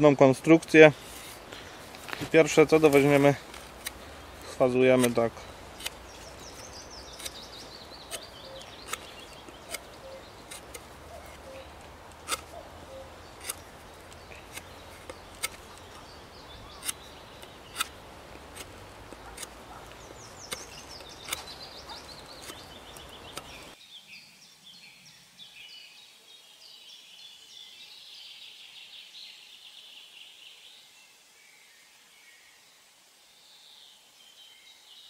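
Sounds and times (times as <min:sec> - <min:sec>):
birds singing trills: 0:04.0 - 0:32.6
knife carving wood clicks: 0:05.0 - 0:12.5, 0:13.4 - 0:16.0, 0:16.8 - 0:23.8.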